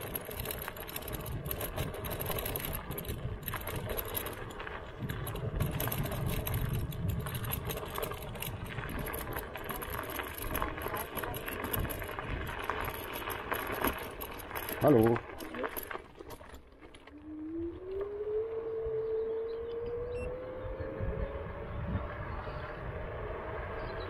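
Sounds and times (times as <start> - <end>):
small rattles: 0.0 - 17.2
scooter road and tyre noise: 0.0 - 24.0.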